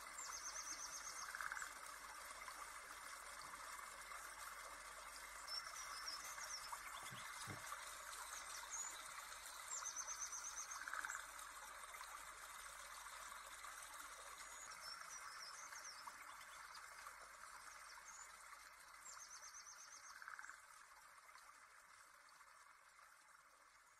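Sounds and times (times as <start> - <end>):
trickling water: 0.0 - 23.9
small birds chirping: 5.5 - 11.2.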